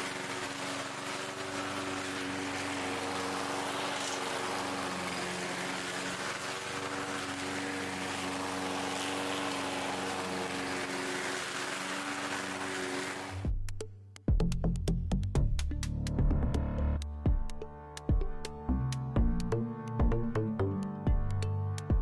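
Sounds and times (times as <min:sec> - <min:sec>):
lawn mower cutting grass: 0:00.0 - 0:13.5.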